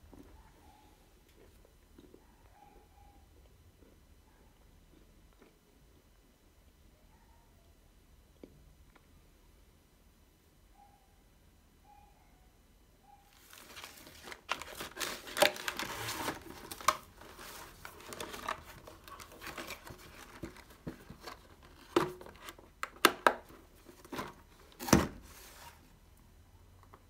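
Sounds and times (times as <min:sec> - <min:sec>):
cardboard packaging crinkling: 0:13.3 - 0:25.8.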